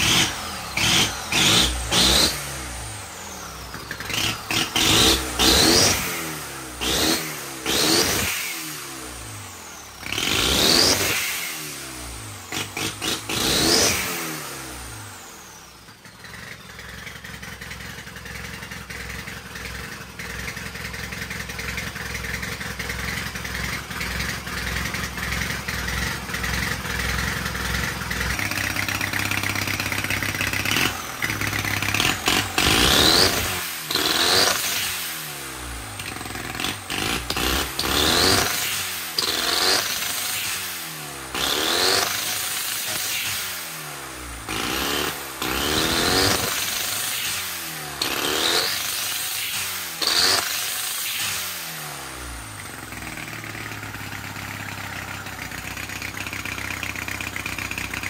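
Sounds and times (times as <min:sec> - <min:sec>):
motorcycle engine idling: 0:00.0 - 0:07.0, 0:14.9 - 0:39.3, 0:49.8 - 0:58.0
motorcycle engine revving: 0:00.0 - 0:58.0.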